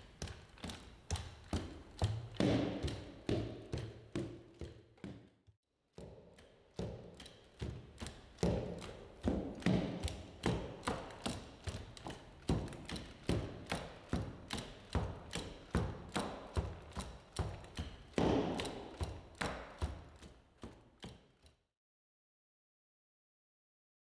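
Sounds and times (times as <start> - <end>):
robot feet thudding on slabs: 0.6 - 5.4, 6.8 - 19.8.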